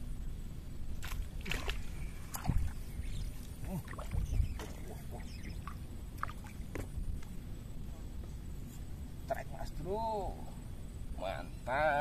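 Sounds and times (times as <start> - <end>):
fish splashing at water surface: 1.0 - 2.8.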